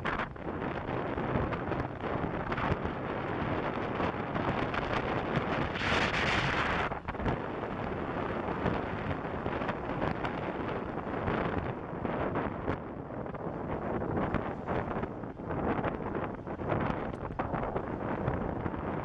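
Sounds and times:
wind rushing over microphone: 0.0s - 19.0s.

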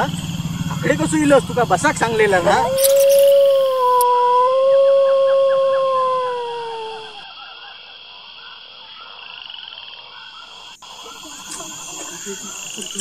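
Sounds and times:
crickets chirping: 0.0s - 13.0s
frogs croaking: 0.0s - 13.0s
dog howling: 2.0s - 7.2s.

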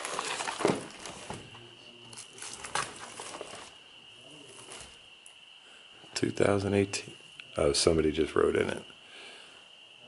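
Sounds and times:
book pages rustling: 0.0s - 1.5s, 2.2s - 3.8s
faint steady high tone: 3.5s - 10.0s.

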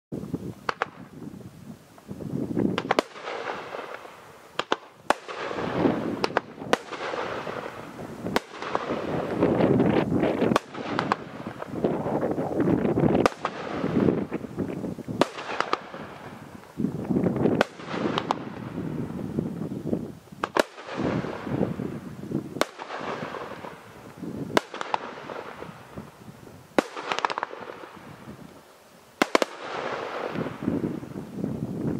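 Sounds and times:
rushing crackling firework noise: 0.1s - 31.9s
firework bangs: 0.6s - 1.2s, 2.1s - 19.7s, 20.4s - 28.5s, 29.2s - 31.9s.

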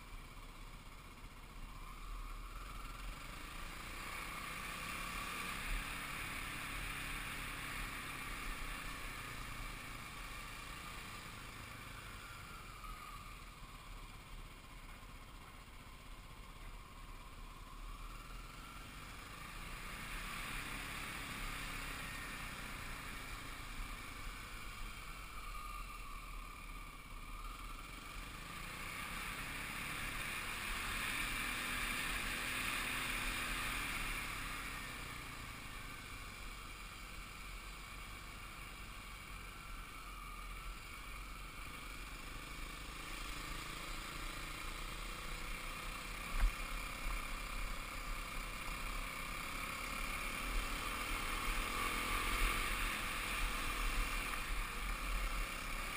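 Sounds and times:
dirt bike engine running: 13.1s - 55.9s.

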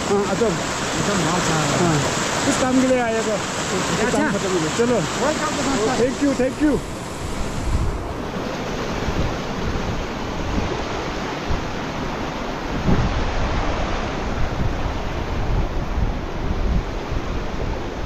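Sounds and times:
wind buffeting microphone: 6.5s - 18.0s.

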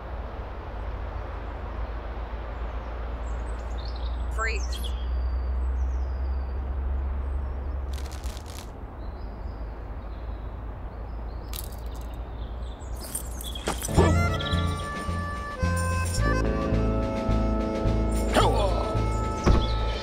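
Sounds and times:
foil packaging crinkling: 7.9s - 8.7s.

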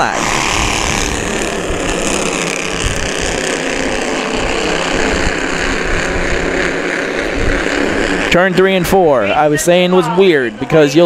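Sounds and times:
small race car engines droning: 0.0s - 11.0s.

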